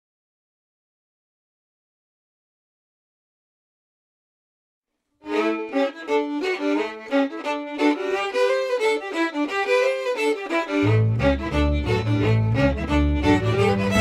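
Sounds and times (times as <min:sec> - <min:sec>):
fiddle tune: 0:05.2 - 0:14.0.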